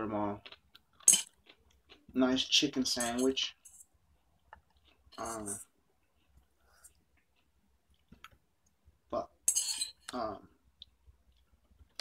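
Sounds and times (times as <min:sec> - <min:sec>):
metal fork scraping a dish: 0:01.0 - 0:01.4, 0:02.9 - 0:03.9, 0:05.2 - 0:05.7, 0:09.4 - 0:10.1.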